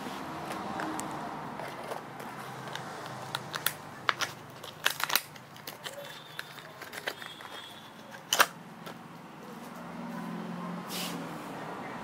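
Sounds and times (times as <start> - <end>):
packaging crinkling: 1.6 - 8.5
packaging snap: 2.7 - 8.6.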